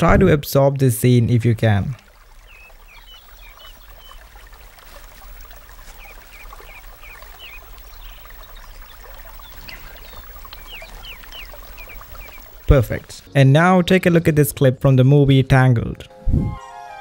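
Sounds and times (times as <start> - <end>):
trickling water: 0.0 - 13.9
small birds chirping: 2.0 - 14.7.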